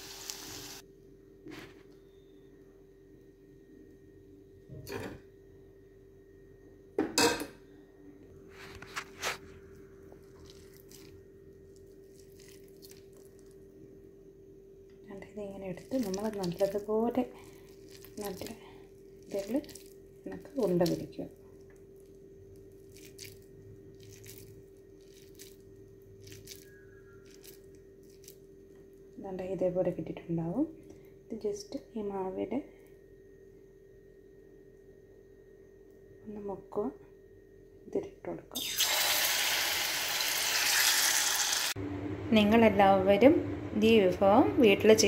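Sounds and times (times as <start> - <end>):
steady low hum: 0.8 - 38.6, 41.7 - 45.0
hand squishing moist mixture: 10.2 - 13.6, 15.6 - 28.4
low hum: 41.7 - 45.0.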